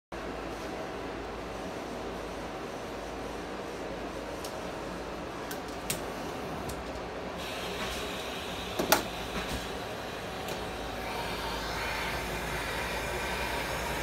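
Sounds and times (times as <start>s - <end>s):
gas torch hissing: 7.4s - 14.0s.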